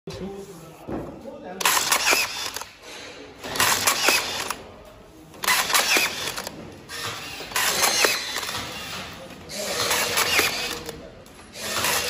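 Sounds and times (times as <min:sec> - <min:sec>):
rebar tying tool whirring: 0:01.6 - 0:02.8, 0:05.4 - 0:12.0.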